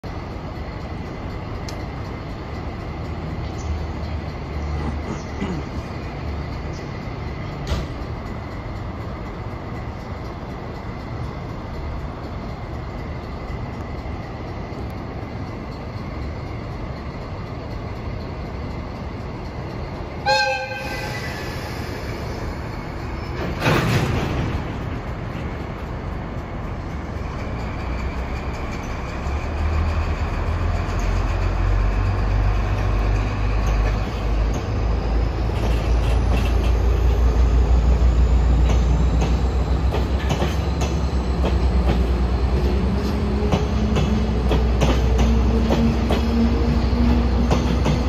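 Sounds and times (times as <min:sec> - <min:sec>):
diesel locomotive rumbling: 0:00.0 - 0:48.0
train horn blast: 0:20.2 - 0:21.6.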